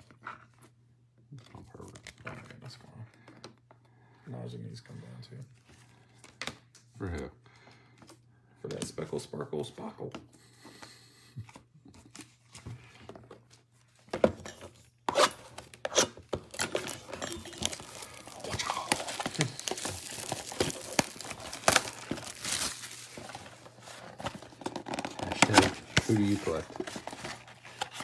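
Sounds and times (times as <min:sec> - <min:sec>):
plastic wrap tearing and crinkling: 0:15.2 - 0:28.0.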